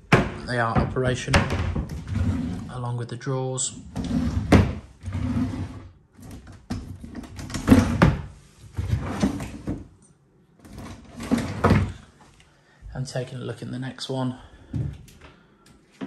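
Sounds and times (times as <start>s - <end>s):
wooden drawers sliding: 0.1s - 2.7s, 3.8s - 9.9s, 10.6s - 12.1s.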